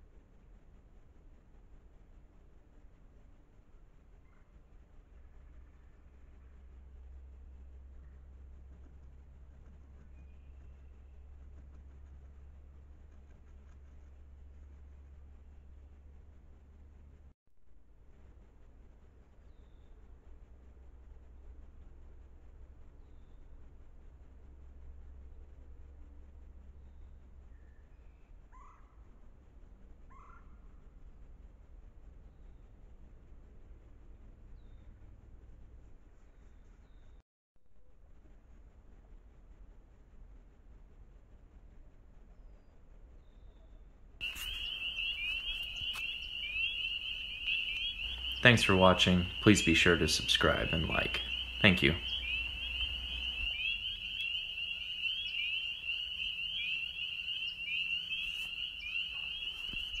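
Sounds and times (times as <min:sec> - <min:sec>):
faint low rumble: 0:00.0 - 1:00.0
animal chorus of fast trills: 0:44.2 - 1:00.0.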